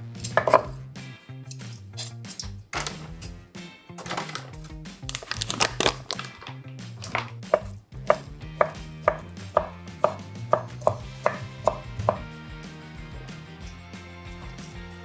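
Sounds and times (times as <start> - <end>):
knife chopping on wooden board: 0.4 - 0.8, 7.0 - 12.3.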